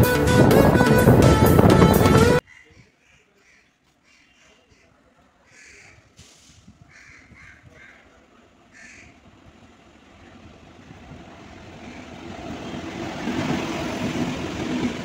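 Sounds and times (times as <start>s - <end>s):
approaching train rumble: 0.0s - 2.4s, 8.0s - 15.0s
crow cawing: 5.5s - 6.0s, 6.9s - 8.1s, 8.7s - 9.2s, 11.8s - 12.1s.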